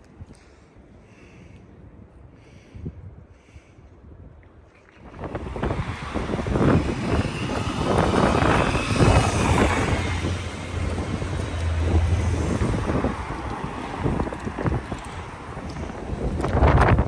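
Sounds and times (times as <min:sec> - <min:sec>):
wind buffeting microphone: 0:00.0 - 0:17.0
cars passing on wet road: 0:05.0 - 0:17.0.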